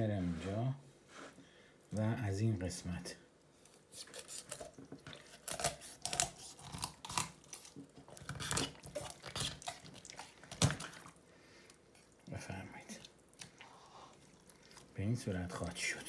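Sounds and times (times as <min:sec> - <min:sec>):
knife cutting through chicken bone: 0:03.9 - 0:09.8.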